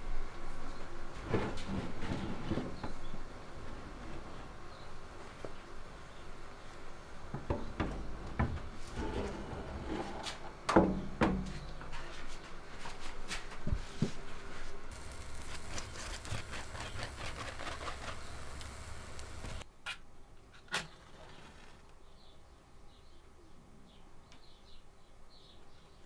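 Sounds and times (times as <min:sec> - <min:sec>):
metal tray scraping oven rack: 0:08.9 - 0:10.4.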